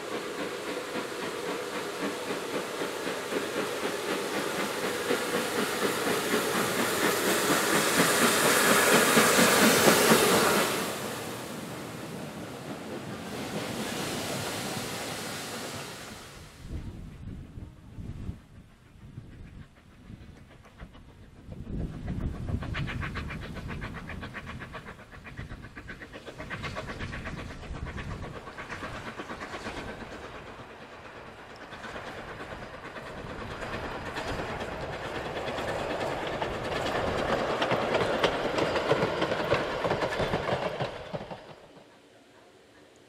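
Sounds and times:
steam exhaust: 0.0 - 42.9
wheels clattering over rails: 30.0 - 41.9.

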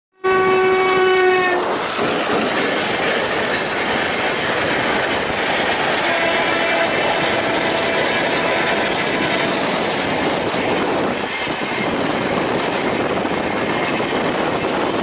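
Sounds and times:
train horn blaring: 0.1 - 1.7, 5.8 - 9.8
train coaches rushing past: 0.9 - 15.0.

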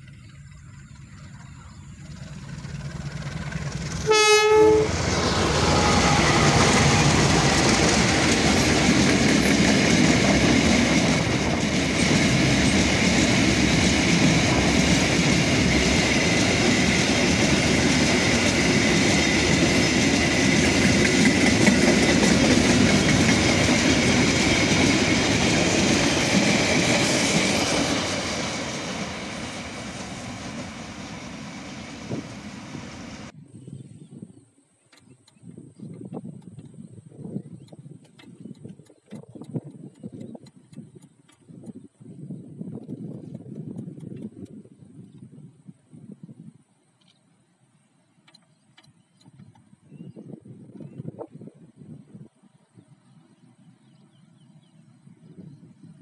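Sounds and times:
train wheels rumbling on rails: 0.0 - 33.4, 36.0 - 45.2
train horn blast: 4.0 - 7.6.

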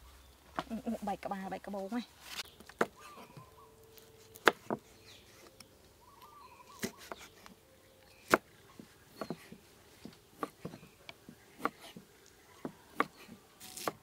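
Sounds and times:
birds chirping faintly: 0.0 - 14.0
cleaver chopping on wooden board: 4.4 - 4.8, 8.2 - 10.9, 11.6 - 12.0, 12.6 - 14.0.

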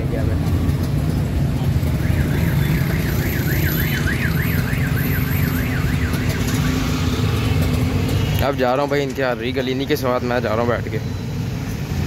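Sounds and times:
auto-rickshaw engine running: 0.0 - 12.0
city traffic: 0.0 - 12.0
warbling electronic alarm: 1.9 - 7.6.

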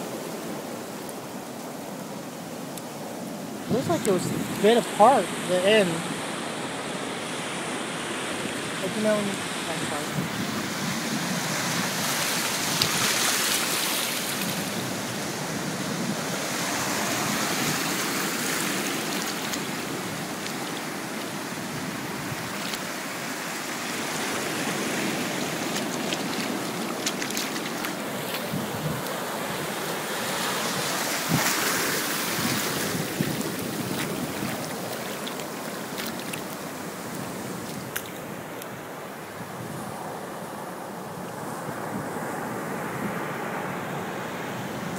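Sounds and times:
ocean surf washing up beach: 0.0 - 44.9
wind on microphone: 3.6 - 6.1, 8.4 - 22.9, 24.2 - 29.8, 30.6 - 36.4.

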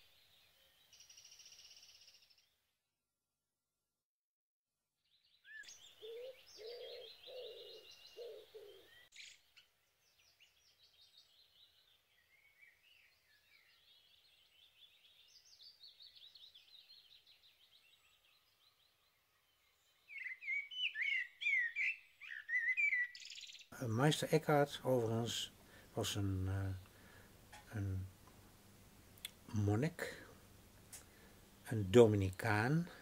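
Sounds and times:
small birds chirping and trilling: 5.1 - 25.8.

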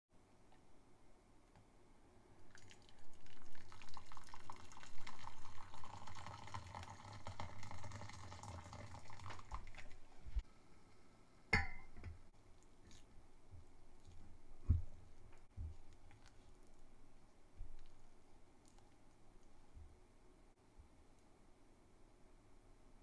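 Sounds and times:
water pouring and splashing: 2.5 - 10.4
glass bowl clinking in pan: 11.6 - 12.2.

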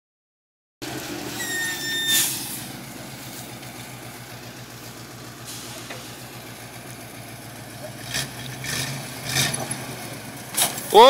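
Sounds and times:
truck engine throbbing: 0.8 - 11.0
high steady squeal: 1.3 - 2.6
short loud hiss: 2.1 - 2.7.

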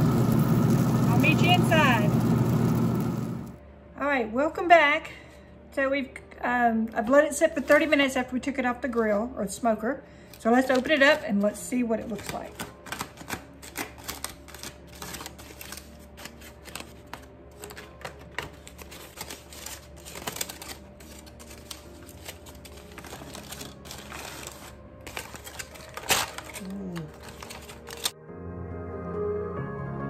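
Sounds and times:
soft background music: 3.6 - 30.0
aluminum foil crinkling: 10.4 - 28.2.

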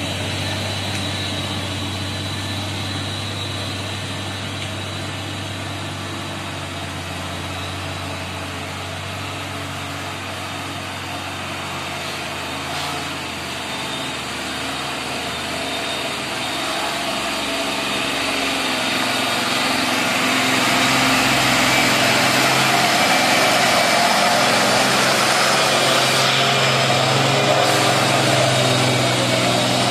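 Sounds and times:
diesel truck engine driving past: 11.7 - 29.9.

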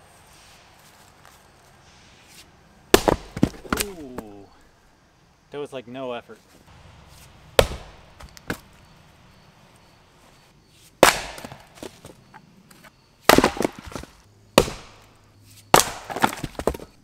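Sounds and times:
axe striking wood: 2.9 - 4.3, 7.1 - 8.7, 11.0 - 12.0, 13.2 - 16.9.

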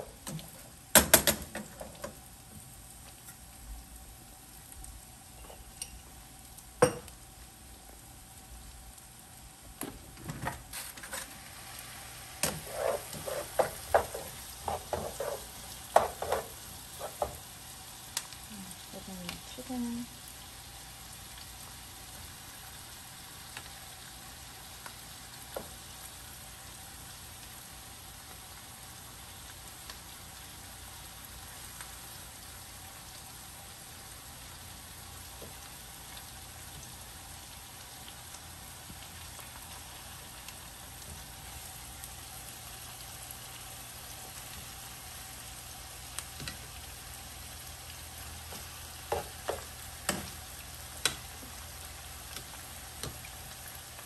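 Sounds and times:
onions sizzling in oil: 0.0 - 54.0
metal tongs clacking on pan: 46.4 - 46.6, 51.0 - 51.3.

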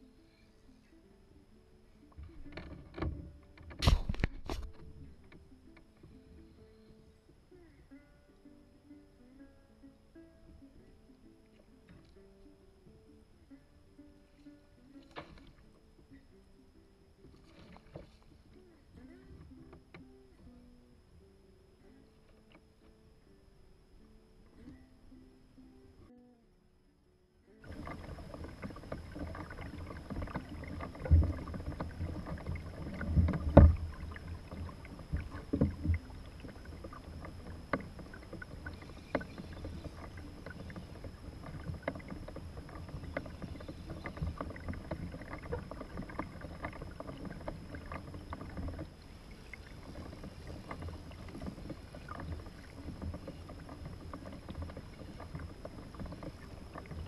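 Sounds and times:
small waves lapping on hull: 1.8 - 9.2, 9.9 - 21.3, 27.6 - 57.0
knocks on kayak hull: 29.2 - 36.1.

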